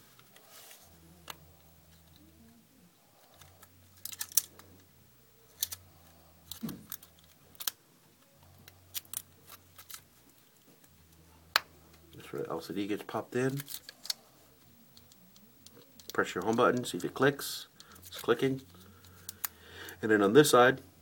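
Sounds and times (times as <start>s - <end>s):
small plastic parts clicking: 3.2s - 4.9s, 5.5s - 5.8s, 6.4s - 10.0s, 13.6s - 14.2s, 14.9s - 17.1s, 17.7s - 19.6s.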